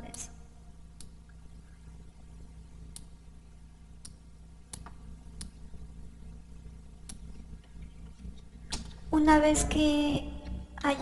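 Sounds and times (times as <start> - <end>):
low steady hum: 0.0 - 11.0
computer mouse clicking: 2.9 - 3.2, 4.0 - 5.6, 7.0 - 9.0.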